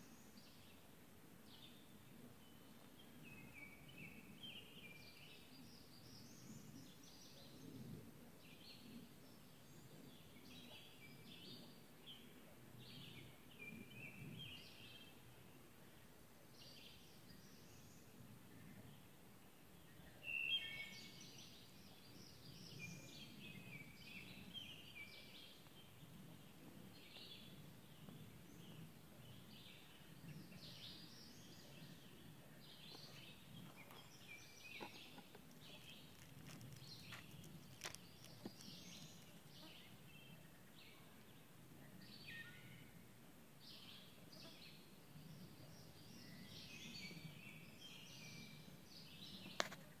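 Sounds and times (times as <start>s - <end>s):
songbirds chirping: 0.0s - 50.0s.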